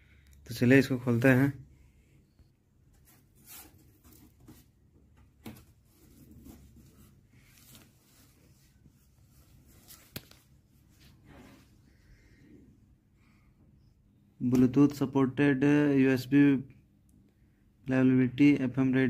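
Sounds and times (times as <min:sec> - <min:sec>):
cardboard rustling and scraping: 0:02.9 - 0:10.2.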